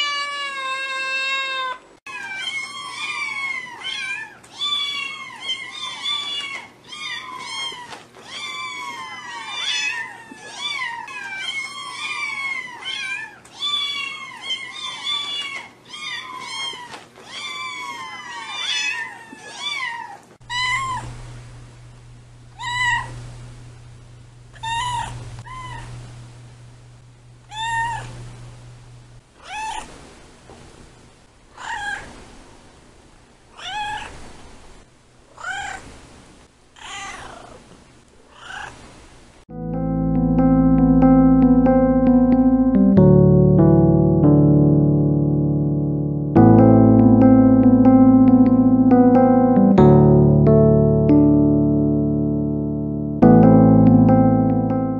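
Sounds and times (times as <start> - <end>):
cat meowing: 0.0 - 21.1, 22.6 - 23.2, 24.6 - 25.9, 27.5 - 28.2, 29.4 - 29.9, 31.6 - 32.1, 33.6 - 34.2, 35.4 - 35.8, 36.8 - 37.6, 38.4 - 38.8
steady low hum: 20.7 - 29.3
kittens mewing: 22.6 - 23.2, 24.6 - 25.9, 27.5 - 28.2.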